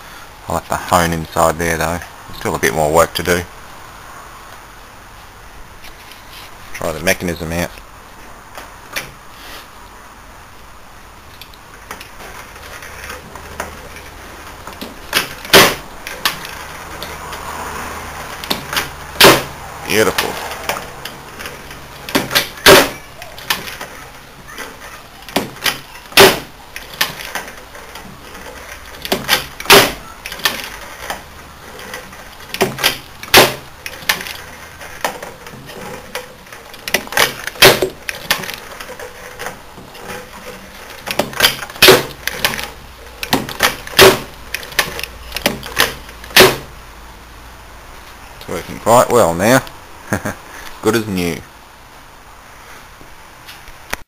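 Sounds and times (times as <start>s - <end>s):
lathe turret metal clunks and clicks: 18.4s - 19.5s, 20.1s - 23.9s, 25.3s - 46.7s.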